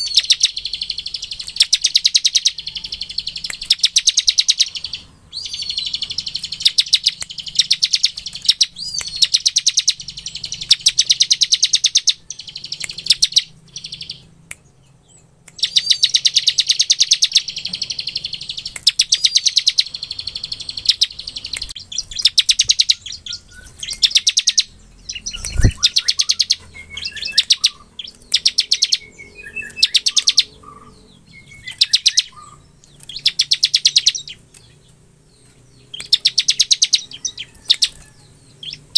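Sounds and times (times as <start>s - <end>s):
bird rapid trilling: 0.0s - 14.3s, 15.6s - 35.0s, 35.8s - 38.9s
bird thin chirps: 0.0s - 38.9s.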